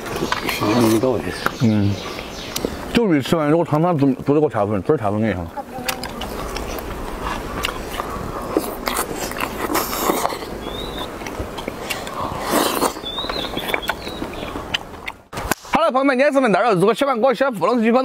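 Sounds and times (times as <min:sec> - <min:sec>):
chewing: 0:00.0 - 0:02.8, 0:05.8 - 0:15.3
slurping soup: 0:06.2 - 0:11.0, 0:11.6 - 0:14.8.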